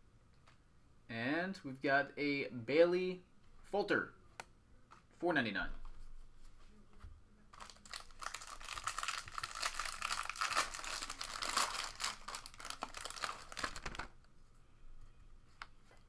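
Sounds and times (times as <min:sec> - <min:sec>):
foil wrapper crinkling and tearing: 0:07.6 - 0:14.2.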